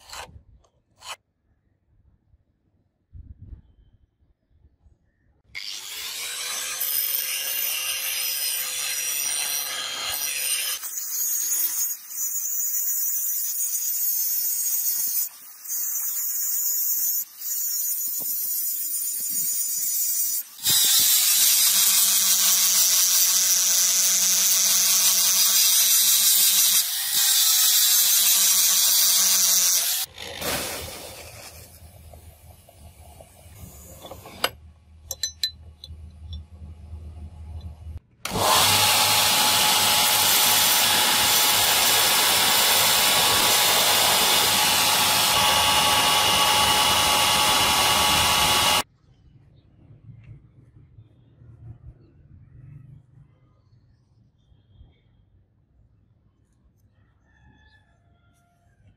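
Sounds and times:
angle grinder grinding steel: 5.6s - 34.6s, 38.3s - 48.8s.

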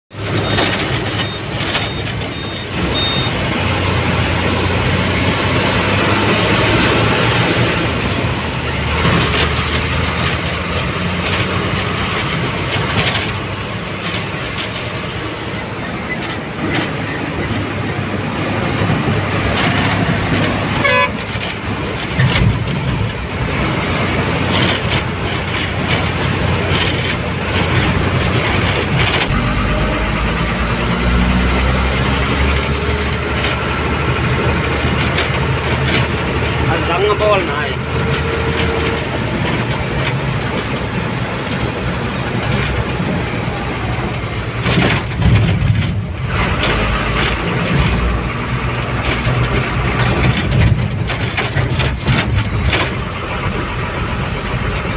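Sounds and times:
vehicle engine and tyre noise: 0.1s - 54.9s
car horn beep: 0.4s - 3.4s, 20.8s - 21.3s.

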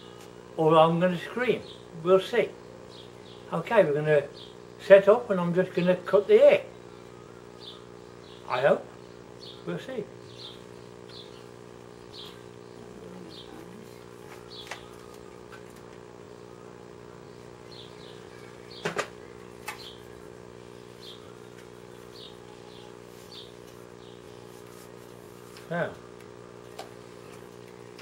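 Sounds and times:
bird chirps: 17.2s - 24.5s.

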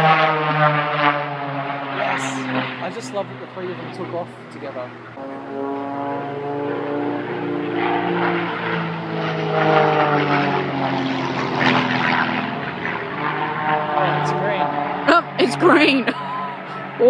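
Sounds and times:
propeller planes droning: 0.0s - 17.0s.

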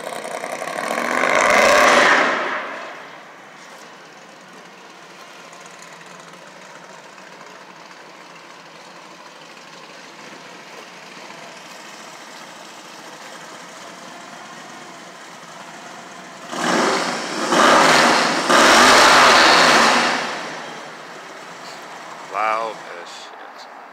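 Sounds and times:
vehicle rushing past: 0.0s - 3.8s
street traffic hum: 0.0s - 23.9s.

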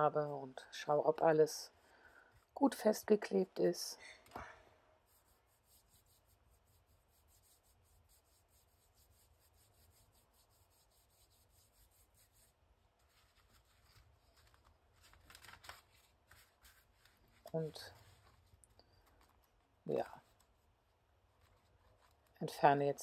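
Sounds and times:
paper handling: 13.0s - 20.6s.

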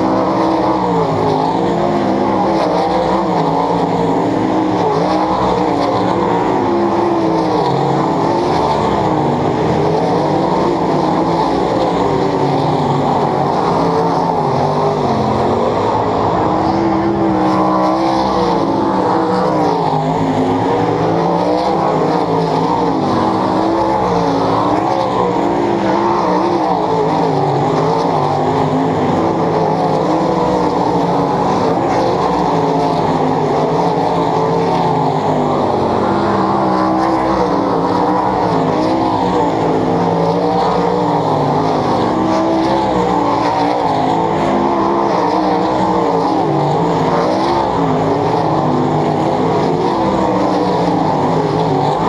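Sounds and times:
sprint car engines racing: 0.0s - 52.0s.

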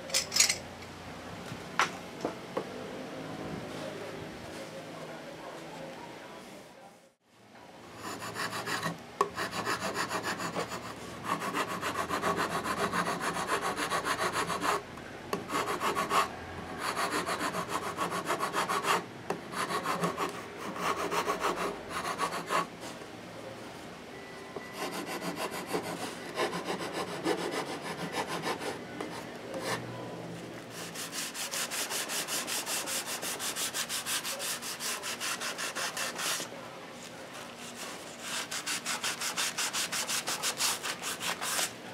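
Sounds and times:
sandpaper rubbing on wood: 30.7s - 36.5s, 37.7s - 41.7s.

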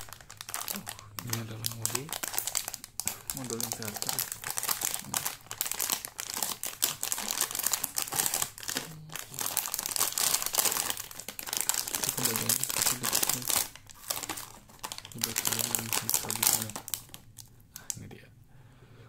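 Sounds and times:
plastic bags crinkling: 0.0s - 17.9s.

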